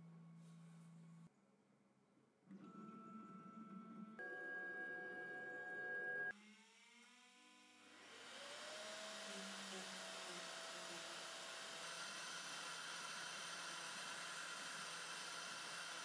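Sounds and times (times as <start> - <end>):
vacuum whirring hiss: 6.7 - 16.0.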